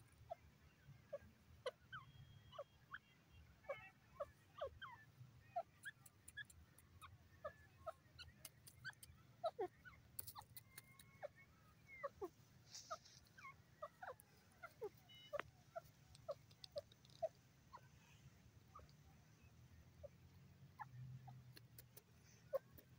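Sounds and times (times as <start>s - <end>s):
faint clicks: 8.2s - 9.2s, 10.1s - 11.2s, 15.4s - 17.4s, 21.3s - 22.9s.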